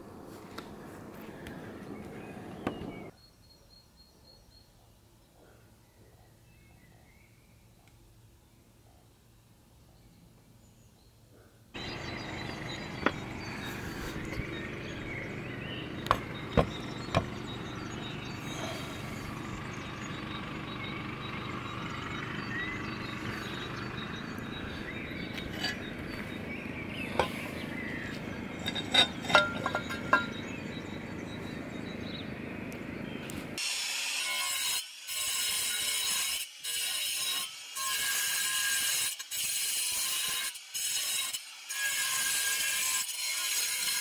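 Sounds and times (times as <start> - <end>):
angle grinder cutting tile: 11.8 - 15.0, 33.6 - 44.0.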